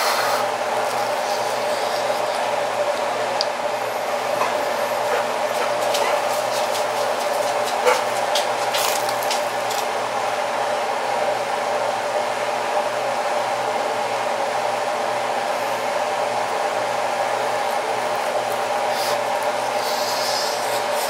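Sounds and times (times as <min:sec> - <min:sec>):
electric fan whirring: 0:00.0 - 0:21.0
crusty pizza crunching: 0:06.3 - 0:09.9.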